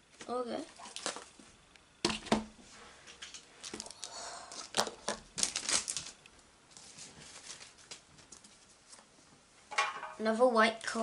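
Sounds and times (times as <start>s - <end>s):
foil wrapper crinkling and tearing: 0.8s - 1.3s, 3.6s - 8.0s.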